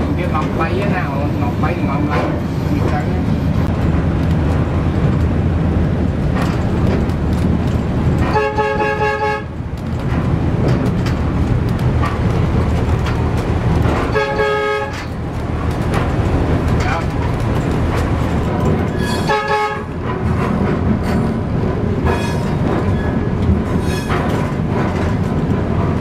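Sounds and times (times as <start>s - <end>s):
railcar rumbling: 0.0s - 26.0s
train horn blasts: 8.3s - 9.5s, 14.1s - 15.1s, 19.1s - 20.0s.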